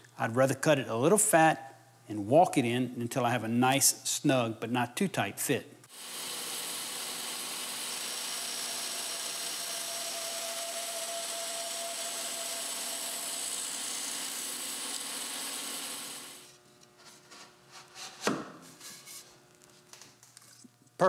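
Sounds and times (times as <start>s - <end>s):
power tool cutting wood: 5.9s - 16.6s.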